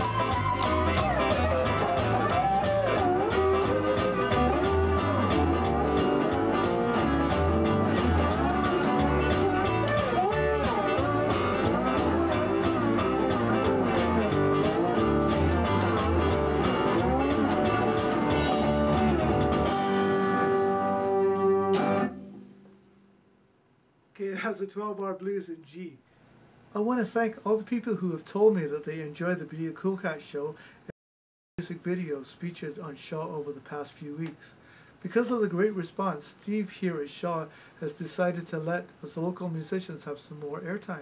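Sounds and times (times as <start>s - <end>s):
backing bass and drums: 0.0s - 20.5s
slide electric guitar blues: 0.0s - 22.4s.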